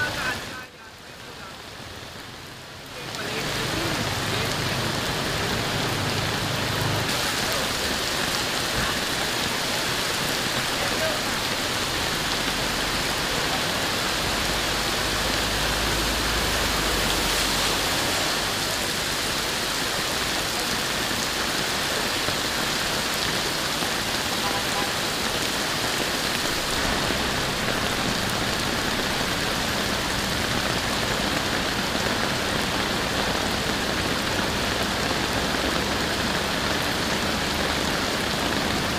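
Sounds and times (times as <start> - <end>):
heavy rain on floodwater: 0.0 - 38.9.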